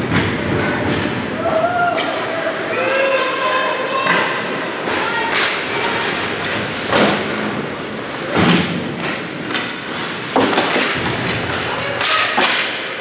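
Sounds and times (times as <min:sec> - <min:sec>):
puck and sticks hitting boards: 0:00.0 - 0:02.2, 0:04.0 - 0:13.0
skates scraping on ice: 0:04.0 - 0:13.0.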